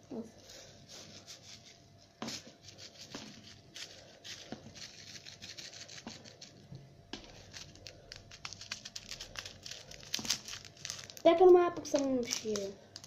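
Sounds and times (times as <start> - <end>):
plastic packet of sprinkles shaken: 2.7 - 6.6, 7.3 - 13.0.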